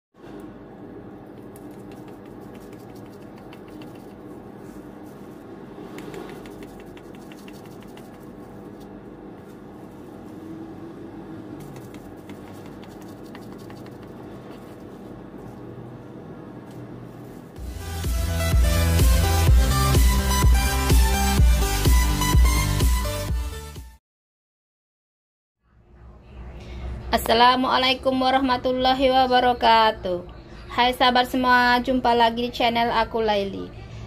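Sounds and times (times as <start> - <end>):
low steady hum: 0.2 - 17.6.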